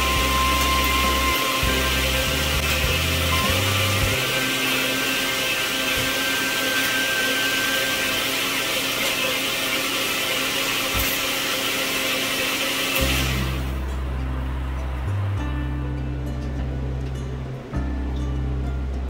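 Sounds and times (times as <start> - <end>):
background music with bass: 0.0 - 6.6, 13.0 - 19.0
boiling milk hissing: 0.0 - 13.8.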